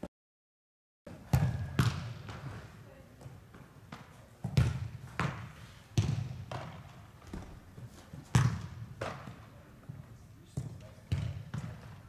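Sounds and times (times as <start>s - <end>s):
soccer ball thuds echoing: 1.2s - 2.6s, 3.9s - 7.6s, 8.3s - 9.4s.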